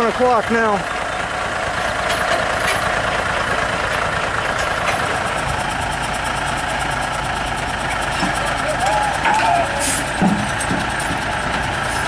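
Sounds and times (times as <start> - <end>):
truck diesel engine running: 0.0 - 12.0.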